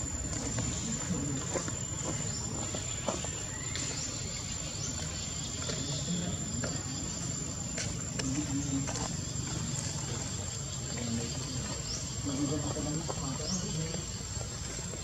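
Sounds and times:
high-pitched insect tone: 0.0s - 15.0s.

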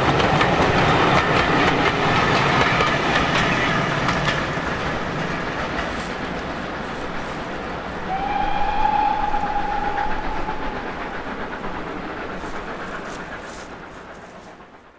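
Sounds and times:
steam train rumble: 0.0s - 14.9s
train whistle blast: 8.0s - 11.8s.

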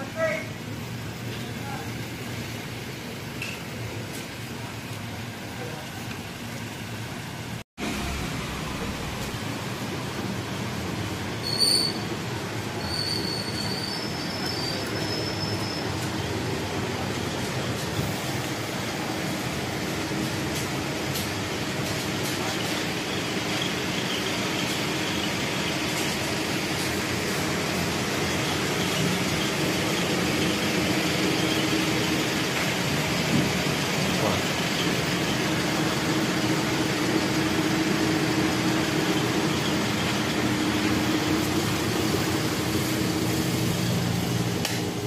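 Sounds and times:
constant hum and hiss: 0.0s - 45.0s.

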